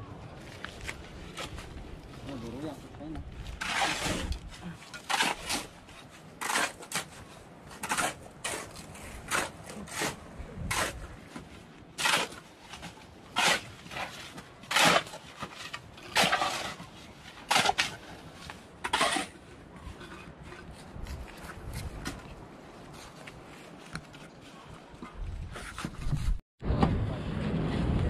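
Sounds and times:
shovel scraping through gravel: 3.6s - 11.1s, 12.0s - 18.0s.

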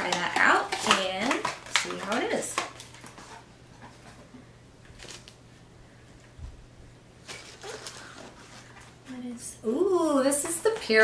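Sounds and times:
packaging rustling and clicking: 0.0s - 4.2s, 4.9s - 5.4s, 7.2s - 9.0s.

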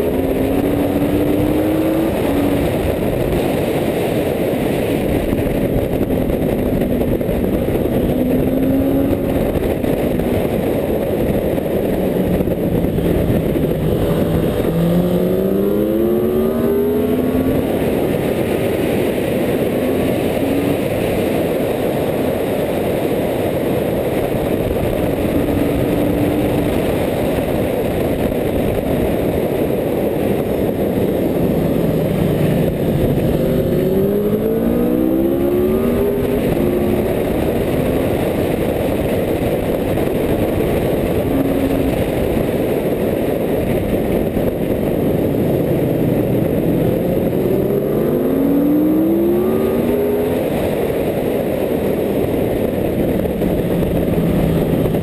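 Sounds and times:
motorcycle engine accelerating: 0.0s - 55.0s
wind buffeting camera: 0.0s - 55.0s.

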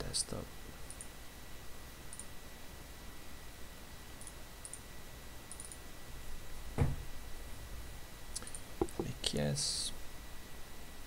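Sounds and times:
microphone hiss: 0.0s - 11.0s
computer mouse clicks: 0.9s - 1.1s, 2.1s - 2.3s, 4.2s - 4.8s, 5.5s - 5.8s, 8.4s - 9.1s.

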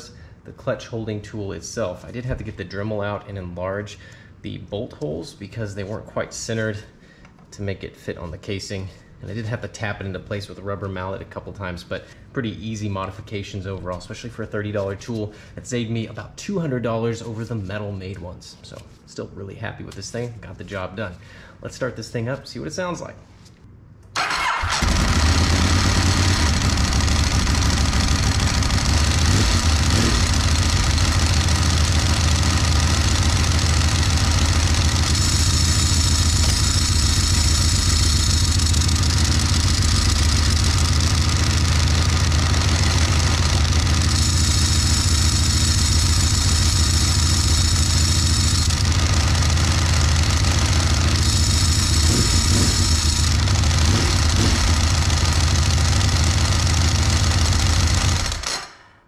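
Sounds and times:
motorcycle engine idling: 24.4s - 58.4s.

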